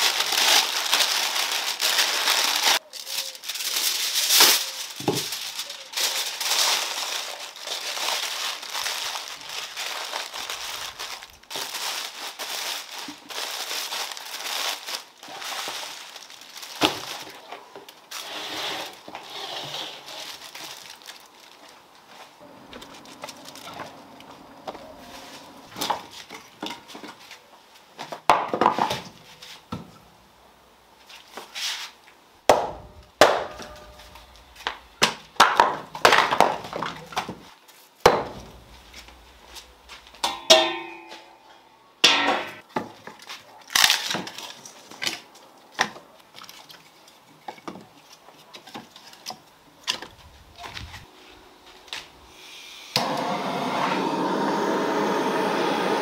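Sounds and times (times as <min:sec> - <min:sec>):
gas blowtorch hissing: 0:52.3 - 0:56.0.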